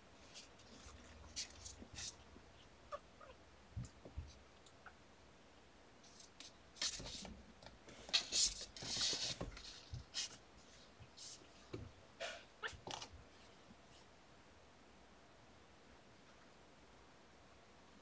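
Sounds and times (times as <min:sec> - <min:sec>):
quiet scratching and rustling: 0:00.0 - 0:04.6, 0:06.0 - 0:14.2.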